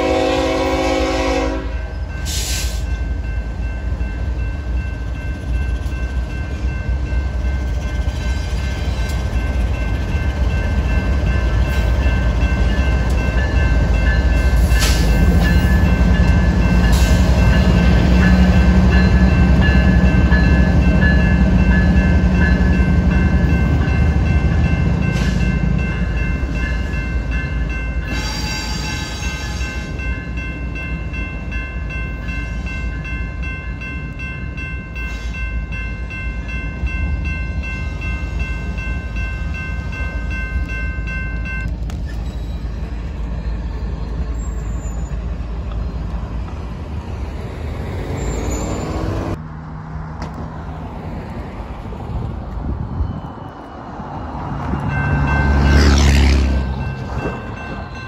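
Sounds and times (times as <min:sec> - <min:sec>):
train horn blast: 0:00.0 - 0:02.7, 0:28.1 - 0:29.9
train rumble: 0:00.0 - 0:58.0.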